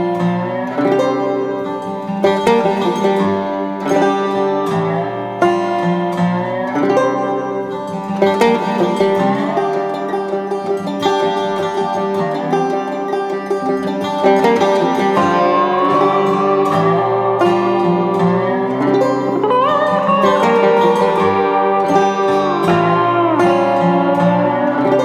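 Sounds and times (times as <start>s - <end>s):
plucked string music: 0.0s - 25.0s.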